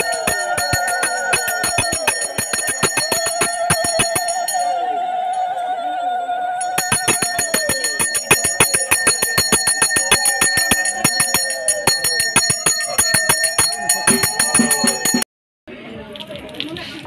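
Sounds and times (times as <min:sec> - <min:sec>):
ritual bells struck rapidly: 0:00.0 - 0:04.8, 0:06.6 - 0:15.3
held wavering tone: 0:00.0 - 0:15.3.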